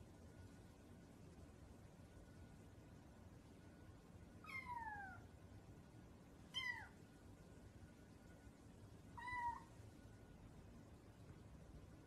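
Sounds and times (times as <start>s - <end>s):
kitten meowing: 4.4s - 5.2s, 6.5s - 7.0s, 9.2s - 9.7s.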